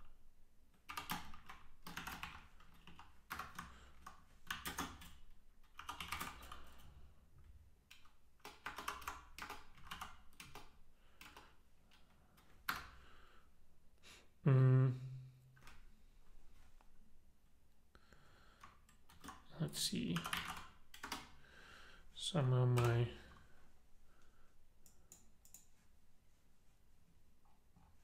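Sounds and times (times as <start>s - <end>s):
typing on computer keyboard: 0.8s - 6.9s, 7.9s - 13.0s, 18.6s - 19.5s, 20.1s - 21.4s, 24.8s - 25.7s
man humming hmm: 14.1s - 15.4s.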